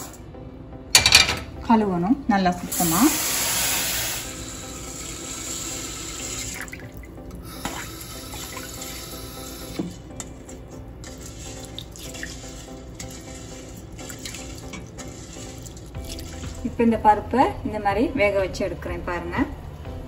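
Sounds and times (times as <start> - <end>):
tap water stream: 6.4 - 10.3, 11.0 - 16.6
water sloshing in a bowl: 9.8 - 16.8.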